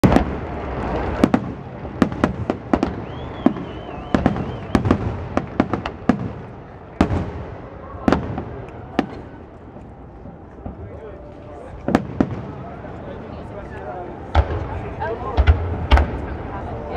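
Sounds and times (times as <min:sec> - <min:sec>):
warbling firework whistle: 0:02.4 - 0:05.2.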